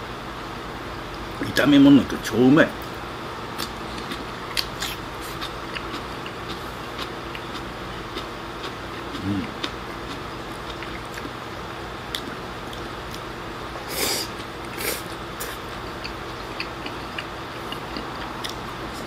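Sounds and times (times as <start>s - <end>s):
soft chewing clicks: 3.6s - 11.4s, 12.1s - 13.3s, 14.4s - 19.0s
slurping food: 13.8s - 15.6s.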